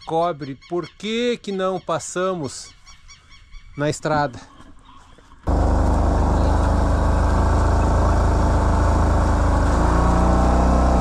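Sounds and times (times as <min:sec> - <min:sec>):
quad bike engine running: 0:05.5 - 0:11.0.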